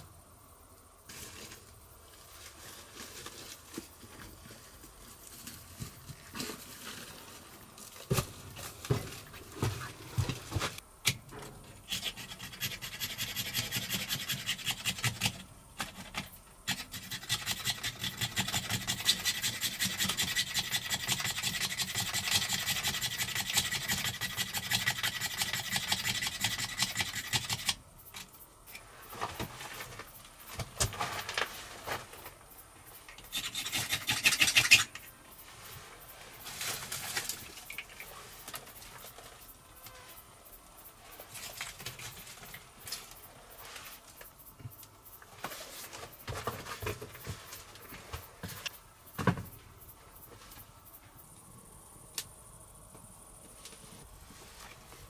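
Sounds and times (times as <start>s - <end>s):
scraping wood by hand: 11.8s - 27.7s.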